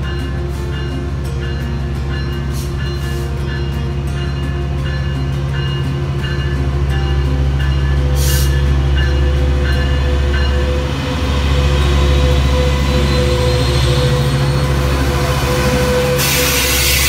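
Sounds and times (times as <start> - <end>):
diesel locomotive engine drone: 0.0 - 17.0
locomotive bell ringing: 0.0 - 17.0
short burst of hiss: 16.2 - 17.0.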